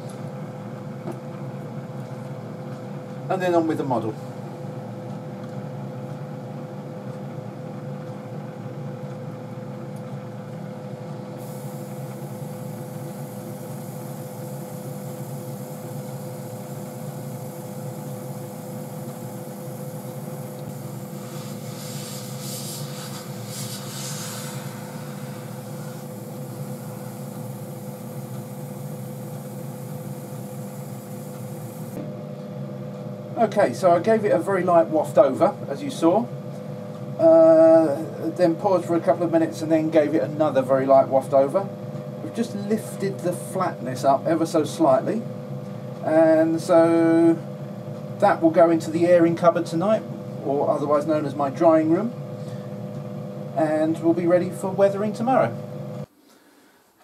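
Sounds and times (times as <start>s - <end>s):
steady machine hum: 0.0s - 57.0s
airbrush hissing: 11.4s - 32.0s.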